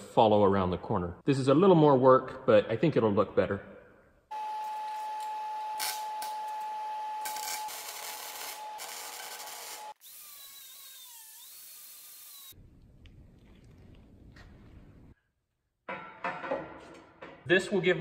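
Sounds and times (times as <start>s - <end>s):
angle grinder grinding steel: 7.2s - 12.6s
welding crackling hiss: 7.3s - 9.9s.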